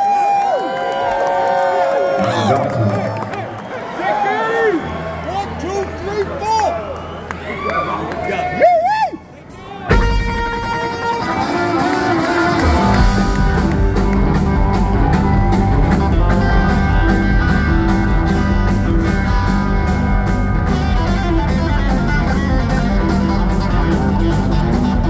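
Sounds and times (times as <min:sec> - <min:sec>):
live rock band playing: 0:09.4 - 0:25.0.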